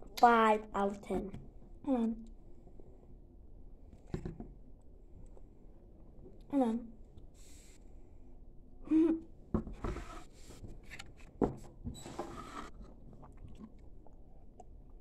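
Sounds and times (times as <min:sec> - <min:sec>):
plastic bottle clicks and knocks: 0:04.1 - 0:04.5
person sipping and swallowing: 0:13.0 - 0:15.0.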